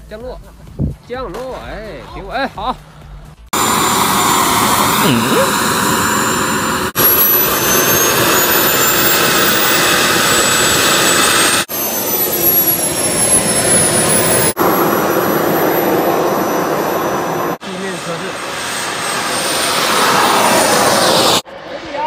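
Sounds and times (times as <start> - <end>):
gas-turbine engine roar: 3.0 - 22.0
turbine high whine: 3.0 - 22.0.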